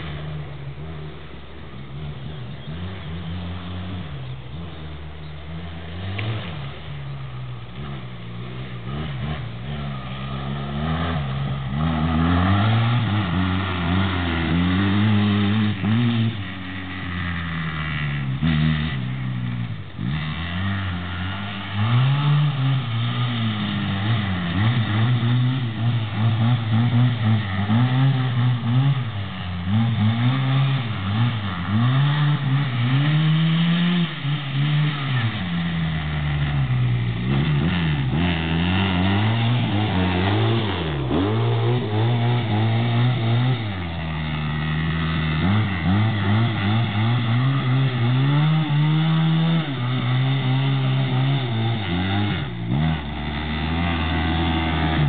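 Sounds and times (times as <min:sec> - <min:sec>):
quad engine revving: 0:00.0 - 0:55.0.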